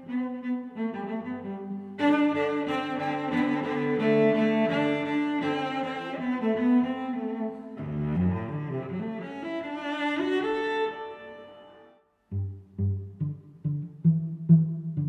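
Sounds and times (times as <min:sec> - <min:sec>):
bowed strings music: 0:00.0 - 0:15.0.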